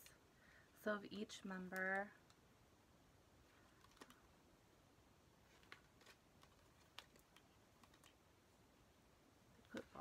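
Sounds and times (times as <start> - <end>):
photocards clicking and rustling: 3.5 - 4.3, 5.4 - 8.2.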